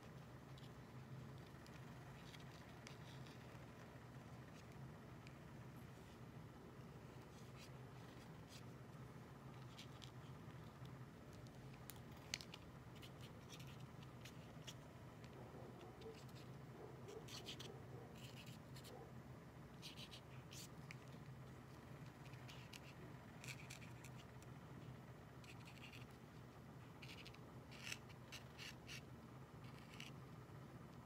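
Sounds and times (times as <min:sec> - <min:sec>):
low room hum: 0:00.0 - 0:31.0
paint pen scratching on surface: 0:17.1 - 0:19.0, 0:29.6 - 0:30.1.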